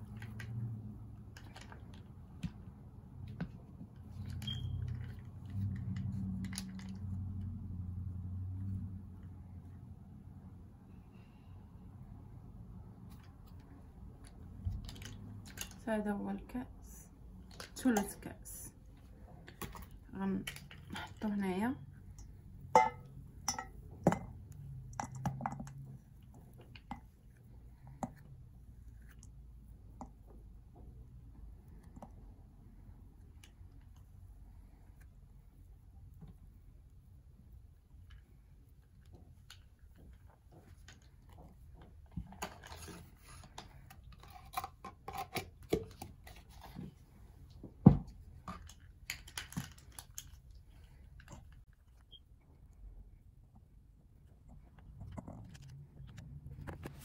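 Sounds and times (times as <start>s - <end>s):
cup clinking against metal bowl: 22.8s - 24.3s
handling clicks and scrapes: 54.3s - 57.0s.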